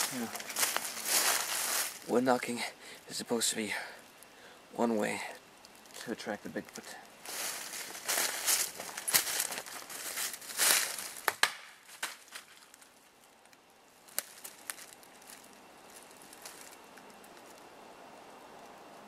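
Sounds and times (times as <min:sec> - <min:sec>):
twigs crunching and crackling: 0:00.0 - 0:02.3, 0:05.6 - 0:17.8
twigs snapping: 0:07.3 - 0:17.7.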